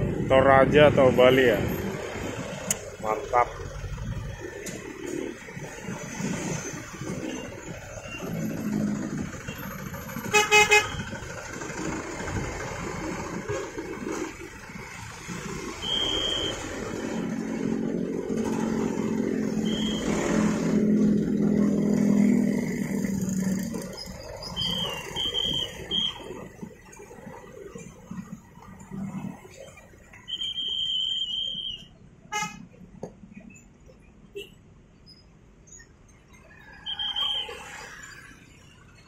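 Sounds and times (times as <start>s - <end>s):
motorcycles passing: 0.0s - 31.1s
truck engine passing: 0.0s - 31.8s
vehicle horn toots: 10.3s - 11.0s, 32.3s - 32.6s.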